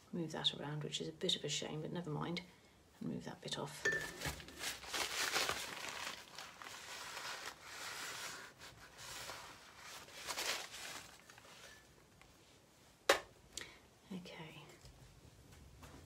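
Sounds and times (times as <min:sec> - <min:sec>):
paper tissue rustling and dabbing: 0:04.0 - 0:13.0.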